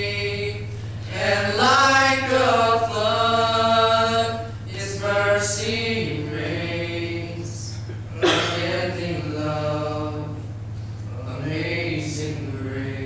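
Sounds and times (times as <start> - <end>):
choir singing a cappella: 0.0 - 13.0.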